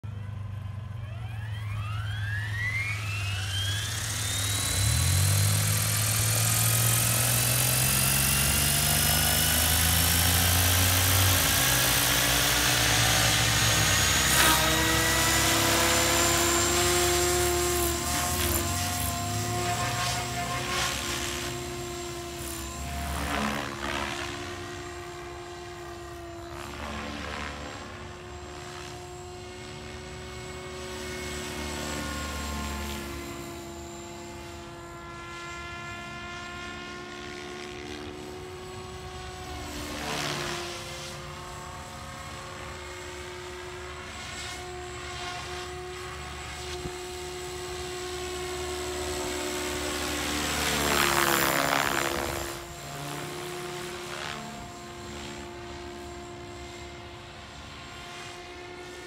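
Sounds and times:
rc helicopter motor whine: 0.0 - 59.0
rotor blades whooshing: 1.9 - 34.7.

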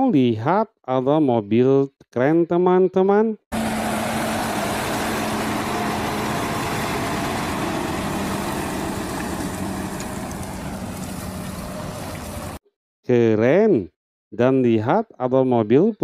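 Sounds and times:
road noise: 3.5 - 12.6
truck engine humming: 3.5 - 12.6.

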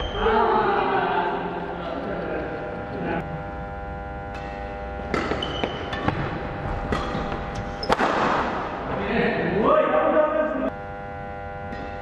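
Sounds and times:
steady hum: 0.0 - 12.0
racket striking shuttlecock: 4.3 - 8.8
shoe squeaks on wooden floor: 5.4 - 6.1.

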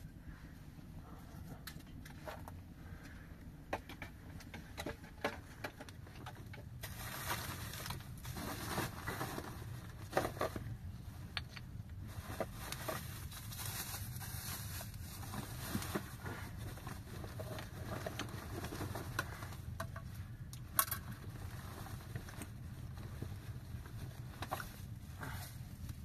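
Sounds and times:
plastic bags rustling: 6.7 - 10.8, 12.0 - 19.8.

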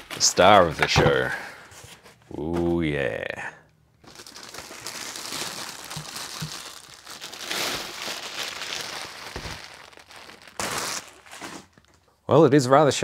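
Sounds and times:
plastic bag crinkling: 4.0 - 12.0.

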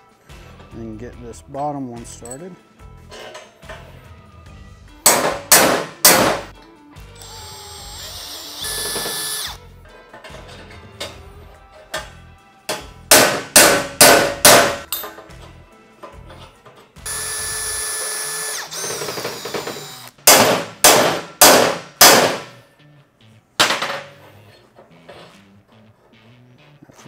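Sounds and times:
hammer striking steel: 5.0 - 6.5, 12.7 - 15.2, 20.2 - 22.6
drill running: 7.2 - 9.6, 17.1 - 20.2.

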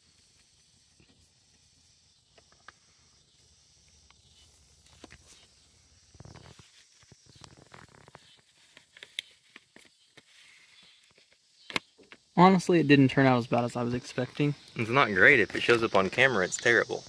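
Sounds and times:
transfer tape peeling crackle: 6.1 - 11.9
small paper clicks: 6.1 - 12.2.

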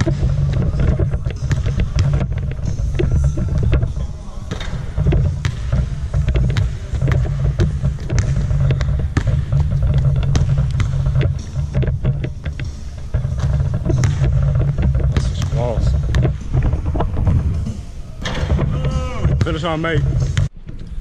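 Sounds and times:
basketball bouncing on hardwood: 0.0 - 17.6.

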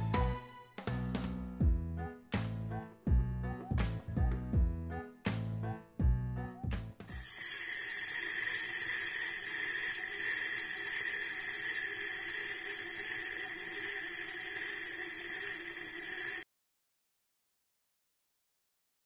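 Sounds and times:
music: 0.0 - 7.2
spinning toy wheel whirring: 7.1 - 16.5.

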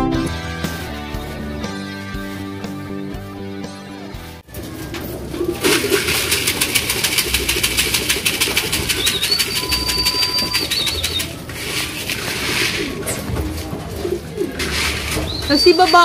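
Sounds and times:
pigeon wings flapping: 4.6 - 16.0
high steady whistle tone: 8.9 - 11.3, 15.3 - 16.0.

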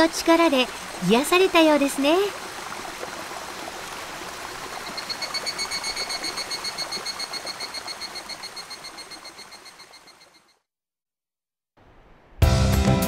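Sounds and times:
stream rushing over rocks: 0.0 - 9.5
high-pitched pulsing call: 4.8 - 10.5.

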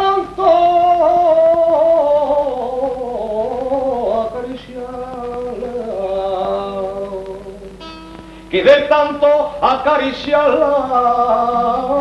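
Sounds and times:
man singing folk song: 0.0 - 12.0.

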